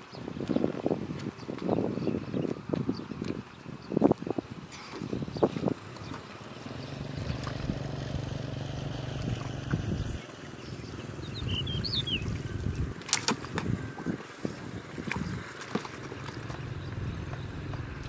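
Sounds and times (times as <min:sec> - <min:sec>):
water splashes: 0:02.4 - 0:18.0.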